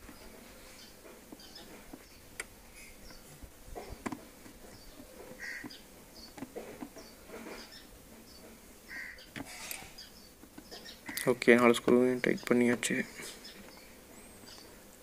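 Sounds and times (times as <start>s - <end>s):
bird chirps: 7.0s - 11.3s.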